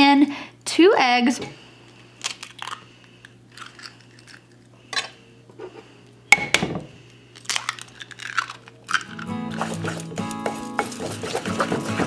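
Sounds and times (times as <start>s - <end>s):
sharp egg crack: 7.4s - 10.4s.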